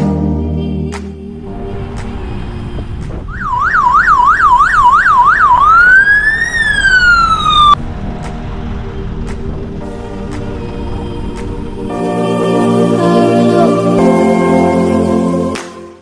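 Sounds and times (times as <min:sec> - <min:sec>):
background music: 0:00.0 - 0:16.0
electronic siren yelp and wail: 0:03.3 - 0:07.8.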